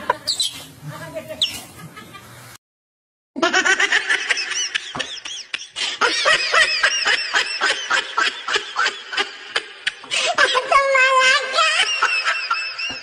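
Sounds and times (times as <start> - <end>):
laughter in bursts: 1.8 - 2.3, 3.4 - 13.0.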